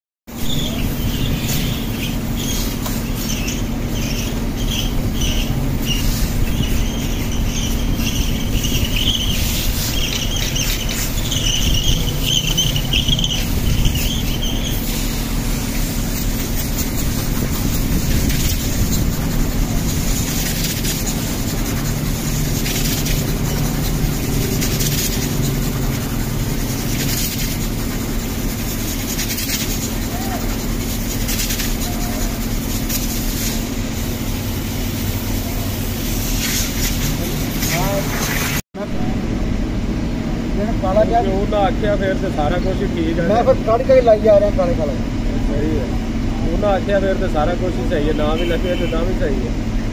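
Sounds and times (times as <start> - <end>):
steady low hum: 0.3 - 38.2, 38.8 - 48.0
palm squeaking on glass: 0.4 - 33.0.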